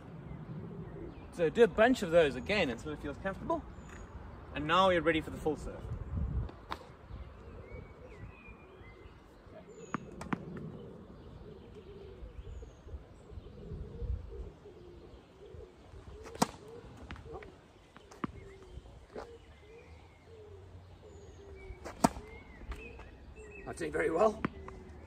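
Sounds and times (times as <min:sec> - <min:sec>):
small birds chirping: 0:00.0 - 0:25.0
pigeon cooing: 0:00.5 - 0:01.3, 0:07.4 - 0:23.6
tennis racket hitting ball: 0:16.3 - 0:17.4, 0:21.8 - 0:22.3.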